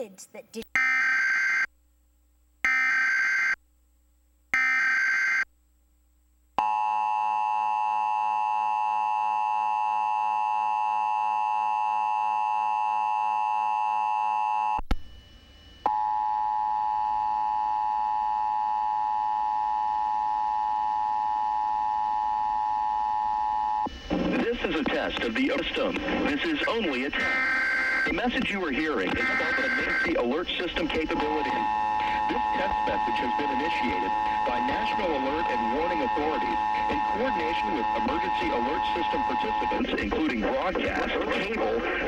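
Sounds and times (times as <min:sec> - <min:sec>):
shrill data bursts: 0:23.8 - 0:42.0.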